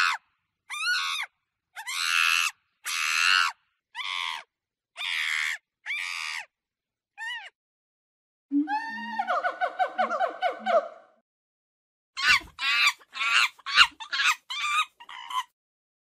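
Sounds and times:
monkey screaming: 0.0 - 6.5, 7.2 - 7.6, 12.2 - 15.6.

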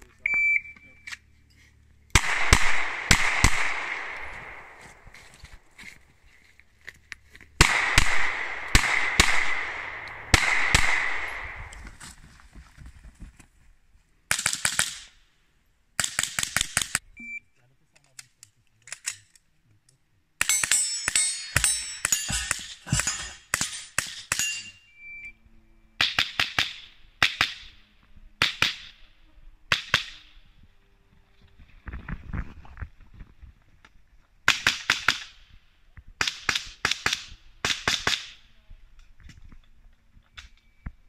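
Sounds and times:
rifle shots with short echo: 2.1 - 5.2, 7.6 - 12.0.

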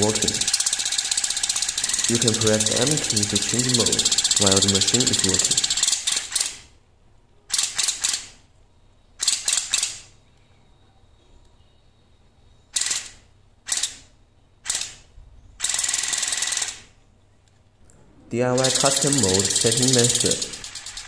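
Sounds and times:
water flosser rattling buzz: 0.0 - 6.4, 18.5 - 21.0.

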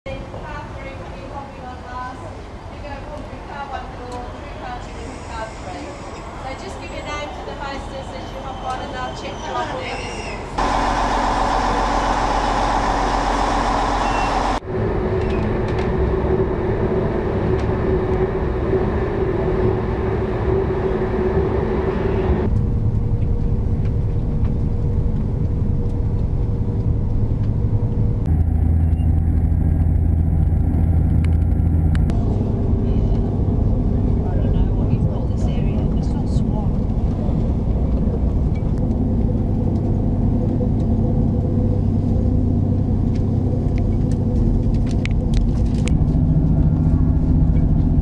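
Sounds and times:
diesel railcar running: 0.1 - 48.0
low hum: 10.6 - 48.0.

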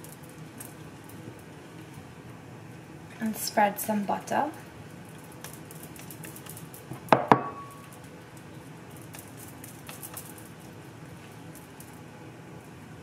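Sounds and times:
hard object knocking kitchenware: 7.1 - 7.7.

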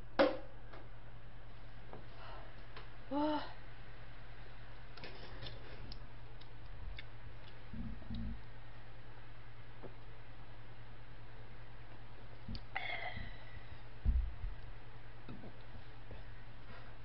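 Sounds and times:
low electrical hum: 0.0 - 17.0
hummed vocal sound: 7.7 - 8.4, 12.5 - 13.7.

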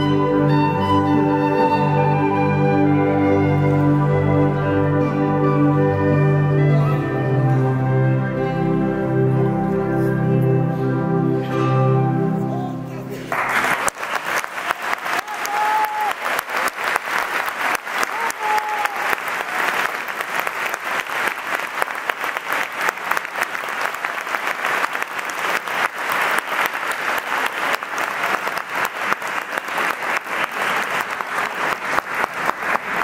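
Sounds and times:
crowd clapping: 13.2 - 33.0.

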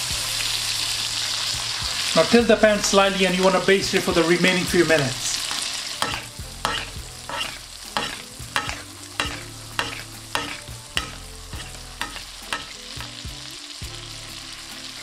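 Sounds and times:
chicken sizzling in butter: 0.0 - 15.0
spoon basting with butter spatter: 4.9 - 13.3.

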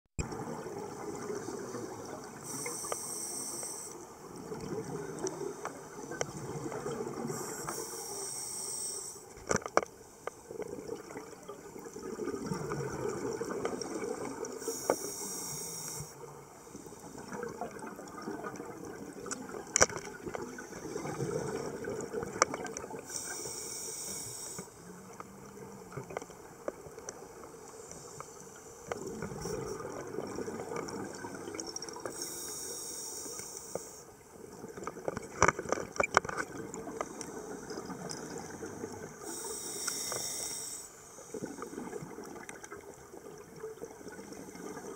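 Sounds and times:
exhaled air bubbling underwater: 0.2 - 9.4, 10.3 - 44.9
regulator hissing on inhalation: 2.5 - 4.0, 7.3 - 9.2, 14.6 - 16.2, 23.1 - 24.8, 32.1 - 34.0, 39.2 - 41.0.

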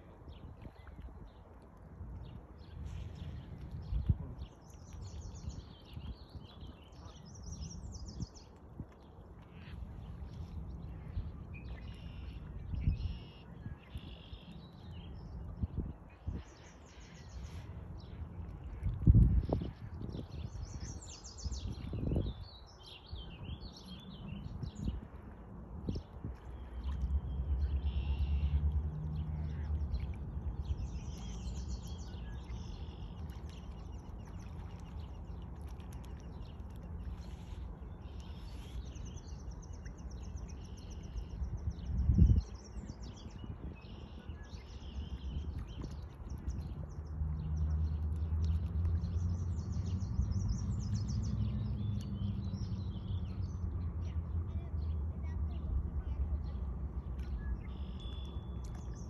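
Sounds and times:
low steady rumble: 0.0 - 59.0
small birds chirping: 29.2 - 59.0.

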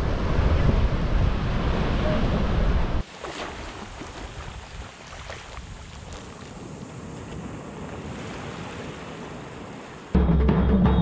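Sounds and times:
wind rumble on microphone: 0.0 - 3.0
small waves lapping on sand: 3.0 - 10.2.

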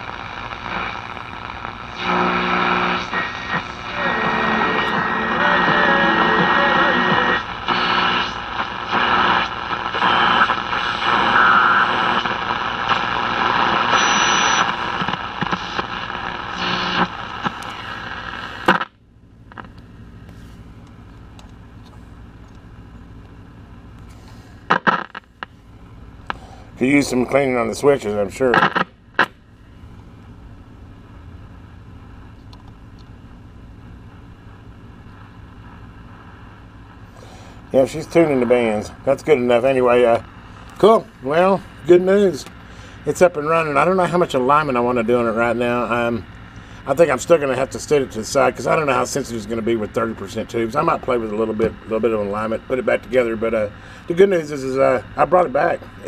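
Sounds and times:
high radio whistle: 0.0 - 18.8
radio clicks: 0.0 - 19.9, 23.2 - 25.6, 28.5 - 29.4, 41.8 - 42.7
radio static hiss: 0.0 - 30.1, 33.4 - 56.0.

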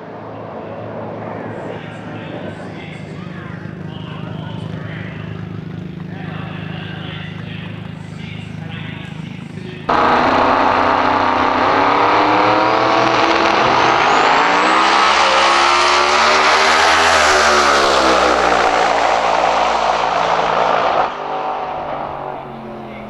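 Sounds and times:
race car engine at full throttle: 0.0 - 23.0
high turbo whistle: 9.9 - 21.6.

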